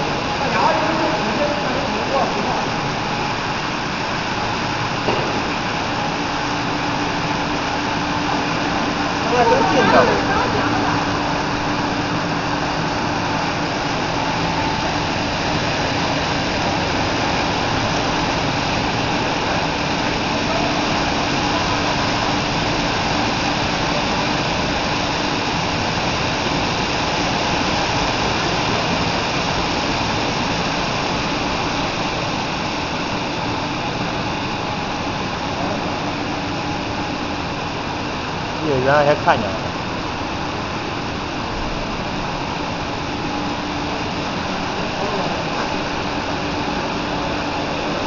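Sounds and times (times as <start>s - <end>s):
low machine hum: 0.0s - 48.0s.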